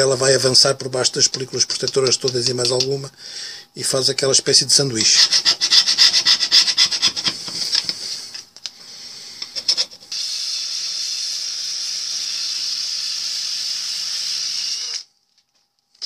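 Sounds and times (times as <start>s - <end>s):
steel scraper scraping metal: 5.0s - 7.9s, 9.4s - 10.1s
drill with wire brush on metal: 5.0s - 8.0s, 9.4s - 15.1s.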